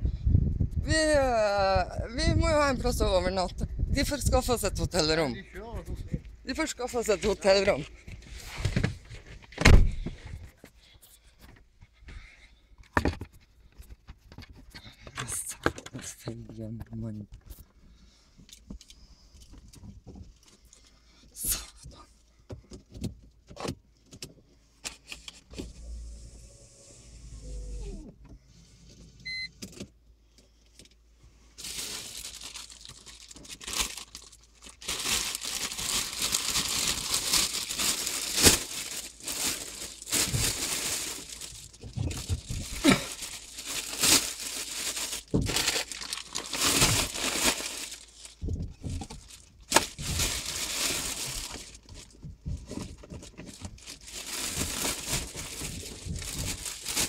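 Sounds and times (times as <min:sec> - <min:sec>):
rustling and crinkling: 0:06.2 - 0:21.1, 0:30.3 - 0:57.0.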